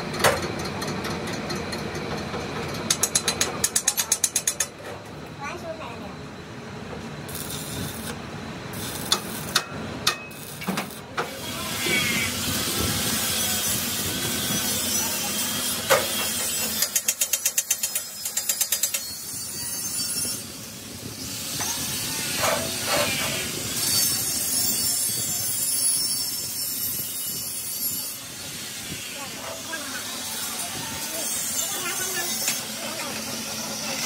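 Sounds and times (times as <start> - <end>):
welding arc crackling hiss: 7.2 - 19.2.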